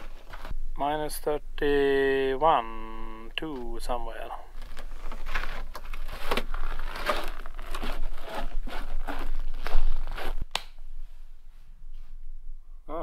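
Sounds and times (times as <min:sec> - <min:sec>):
footsteps crunching on frozen snow: 0:00.0 - 0:00.5, 0:04.5 - 0:10.4.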